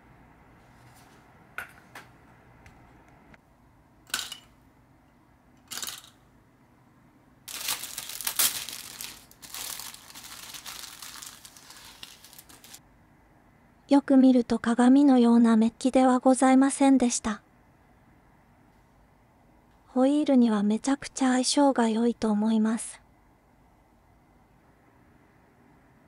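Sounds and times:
plastic bag crinkling: 7.5s - 12.8s.

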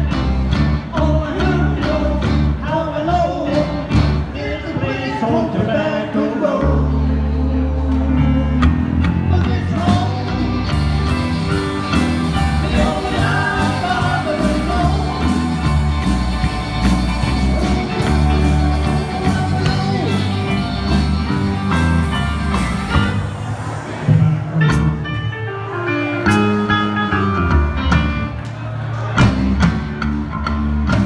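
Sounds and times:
electric bass line: 0.0s - 4.8s, 6.5s - 28.4s
keyboard: 0.0s - 31.0s
lead melodic line: 9.6s - 23.6s.

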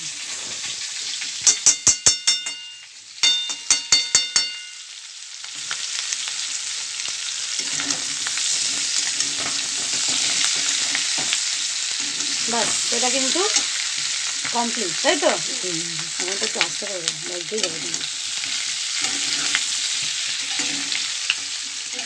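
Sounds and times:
potatoes sizzling in oil: 0.0s - 22.0s
metal spatula stirring: 1.3s - 4.9s, 7.5s - 14.4s, 17.6s - 21.9s
metal utensil tapping on metal: 1.4s - 5.0s.

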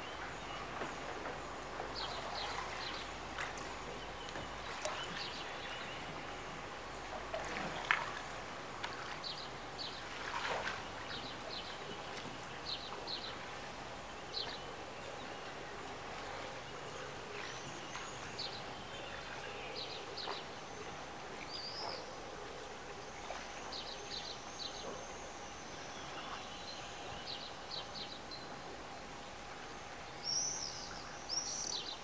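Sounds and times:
background hiss: 0.0s - 32.0s
faint constant hum: 0.0s - 32.0s
small birds chirping: 30.1s - 32.0s.

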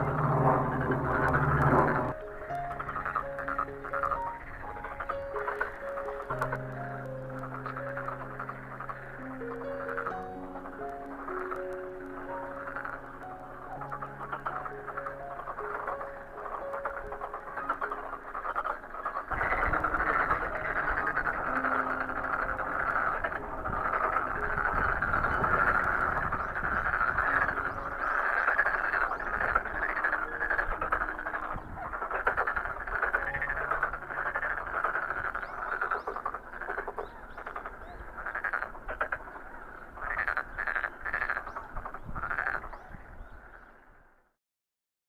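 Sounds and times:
frogs croaking in chorus: 0.0s - 44.2s.

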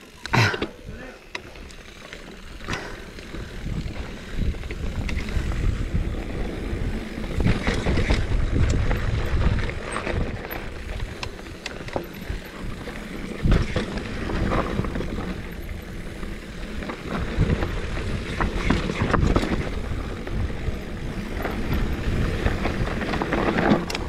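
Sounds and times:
bike clicks and rattles: 0.0s - 24.0s
tyres rumbling over dirt: 0.4s - 24.0s
wind buffeting microphone: 3.3s - 24.0s.

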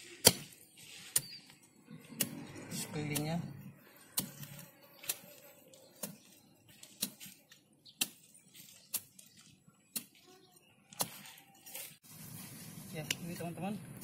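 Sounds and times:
digging bar striking soil: 0.0s - 3.4s, 4.0s - 10.2s.

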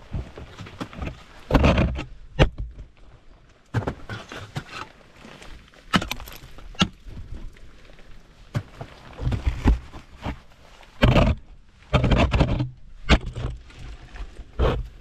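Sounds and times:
ice axes striking ice: 5.9s - 7.0s.

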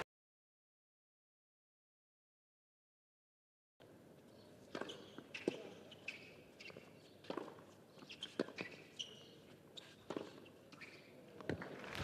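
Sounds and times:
shoes squeaking on court: 4.3s - 12.0s
racket hitting tennis ball: 6.6s - 8.9s.

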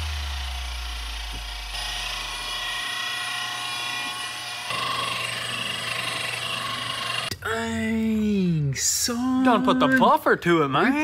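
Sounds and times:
deep bass tone: 0.0s - 2.6s
steady machine hum: 0.0s - 7.9s.

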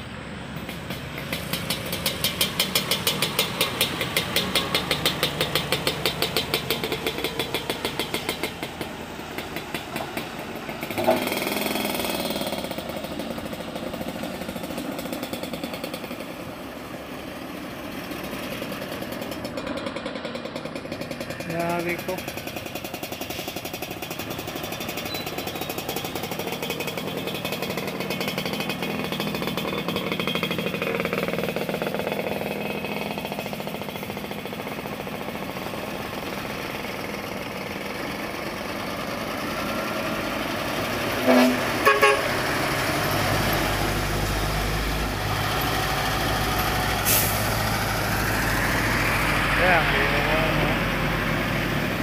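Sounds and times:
truck engine running: 0.0s - 52.0s
vehicle horn toots: 41.2s - 42.4s.

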